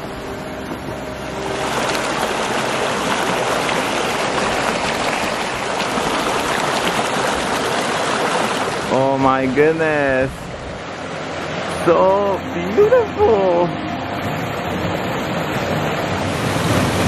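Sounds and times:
background music: 0.0 - 5.8, 11.0 - 17.0
creek rushing over boulders: 0.0 - 17.0.

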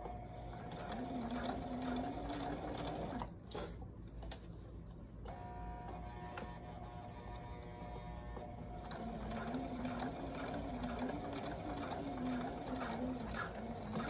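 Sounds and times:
electric sewing machine running: 0.0 - 3.3, 5.4 - 14.0.

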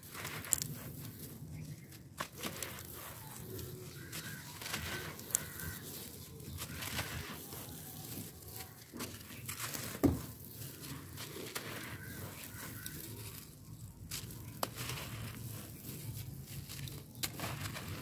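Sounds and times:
hand crumbling dry sand: 0.0 - 18.0.

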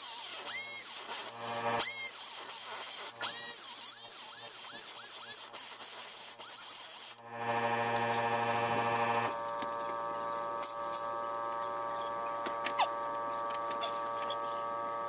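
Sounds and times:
cut-off wheel grinding metal: 0.0 - 2.2
steady mechanical hum: 0.0 - 4.8, 7.2 - 15.0.

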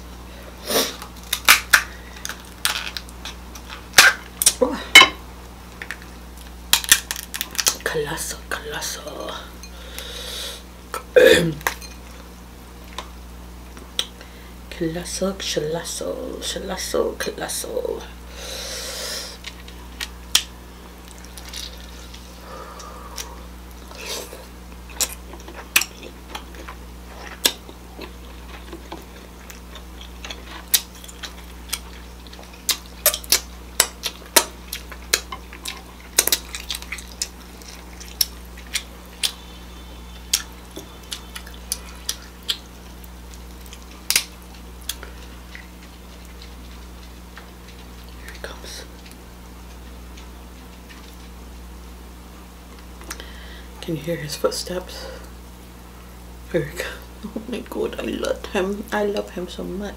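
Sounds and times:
faint low hum: 0.0 - 59.9
wet chewing clicks and smacks: 24.9 - 39.4, 40.2 - 48.4.

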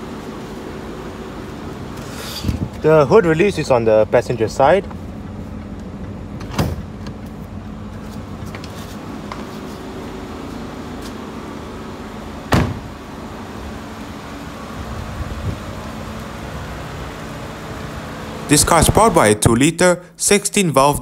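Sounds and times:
steady background hum: 0.0 - 21.0
car door shutting: 5.6 - 7.4, 12.5 - 13.0.

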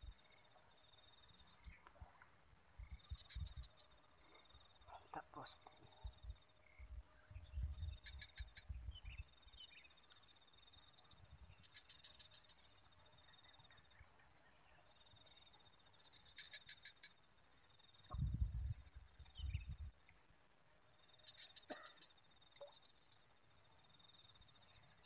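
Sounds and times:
insect chorus chirring: 0.0 - 25.0
rapid cricket chirps: 0.0 - 25.0
low rumbles on microphone: 18.1 - 19.9.

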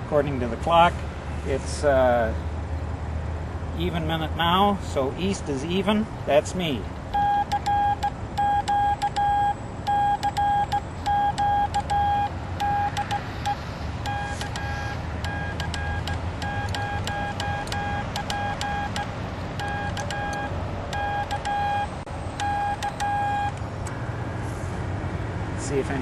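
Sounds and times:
morse code beeps: 7.1 - 24.2.

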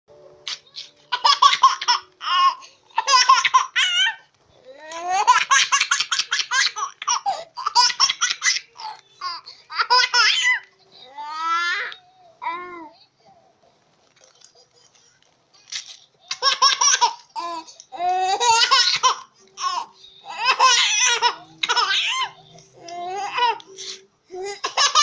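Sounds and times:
baby laughing: 0.4 - 4.2, 4.9 - 10.7, 15.7 - 23.6, 24.4 - 25.0.

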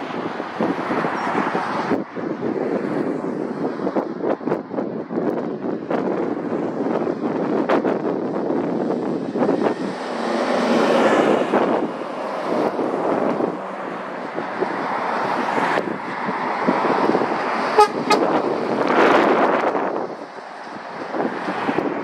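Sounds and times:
lorries and cars passing: 0.0 - 22.0
tractor passing: 9.0 - 21.2
vehicle horn toots: 17.8 - 18.4.

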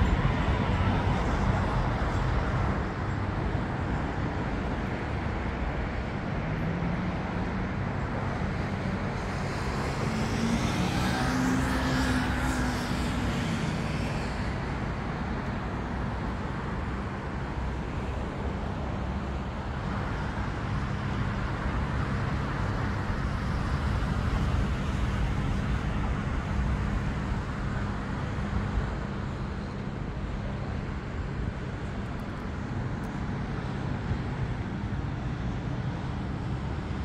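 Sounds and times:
road traffic rumble: 0.0 - 37.0.

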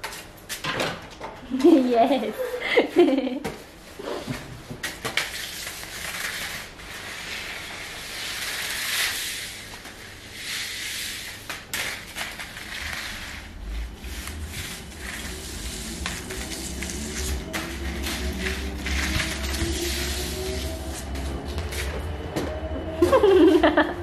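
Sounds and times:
cat toy rustling over rug: 5.7 - 22.0.

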